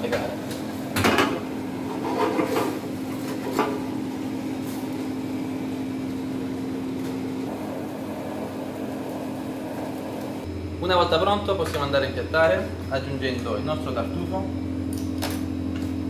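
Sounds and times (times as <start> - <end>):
gas flame rushing with low hum: 0.0 - 16.0
pan clanking and scraping: 1.8 - 3.8.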